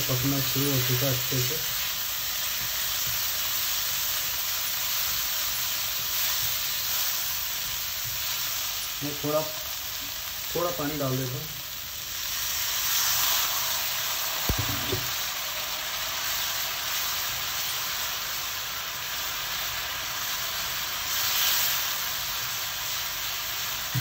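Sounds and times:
masala sizzling in a pan: 0:00.0 - 0:24.0.

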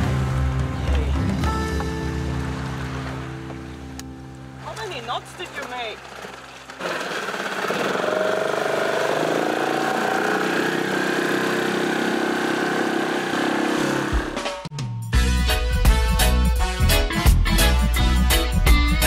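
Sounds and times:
outboard motor running: 0:05.2 - 0:14.4.

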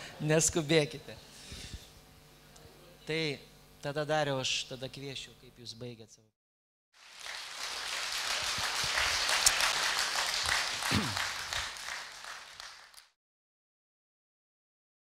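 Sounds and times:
audience applauding: 0:07.0 - 0:13.2.

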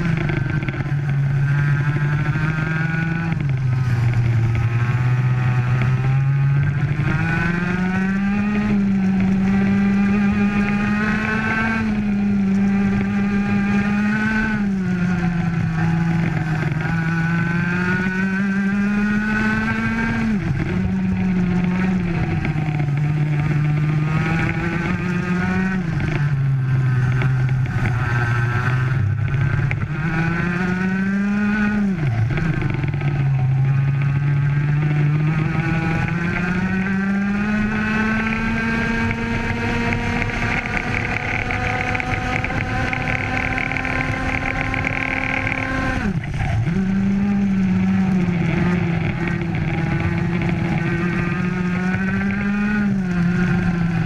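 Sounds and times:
kart engine revving: 0:00.0 - 0:54.0.

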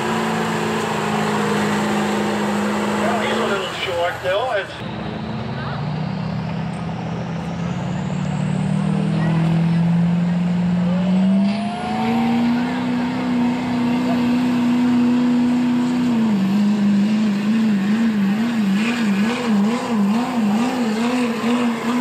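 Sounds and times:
diesel pickup engine revving: 0:00.0 - 0:22.0.

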